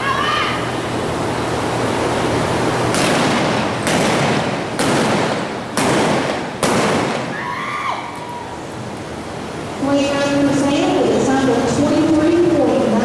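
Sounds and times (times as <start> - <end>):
steady background noise: 0.0 - 13.0
revolver gunshots: 2.9 - 7.4.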